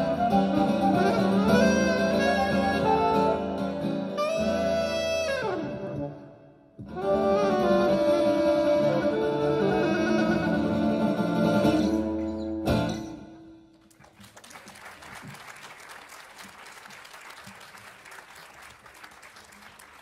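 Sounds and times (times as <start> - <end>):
flute: 0.0 - 12.0
saxophone: 0.0 - 12.1
acoustic guitar: 0.0 - 13.8
audience applause: 13.8 - 20.0.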